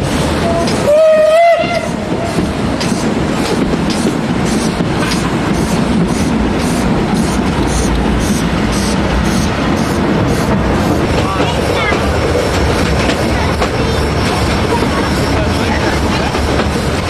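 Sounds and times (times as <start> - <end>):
rumble of engine and wheels: 0.0 - 17.0
steam locomotive exhaust chuffs: 0.0 - 17.0.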